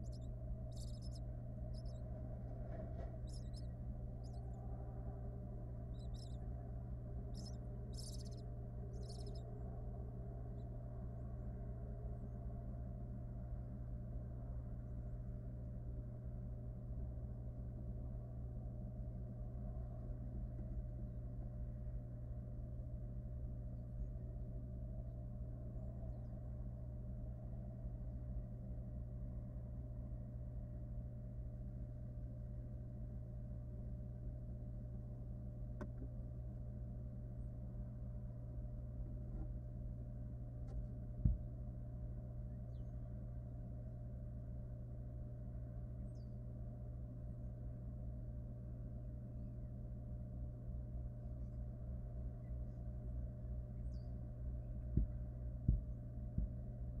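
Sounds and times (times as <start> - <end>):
faint high chirps: 0.0 - 9.8
low electrical hum: 0.0 - 57.0
soft knock: 40.7 - 41.5.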